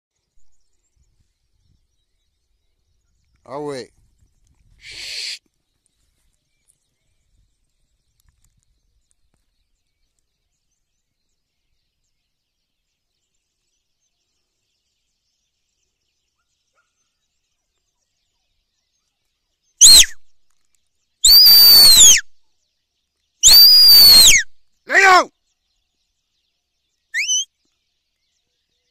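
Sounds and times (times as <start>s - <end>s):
high whistles rising and falling: 19.8s - 20.2s, 21.2s - 22.2s, 23.4s - 24.5s, 27.2s - 27.5s.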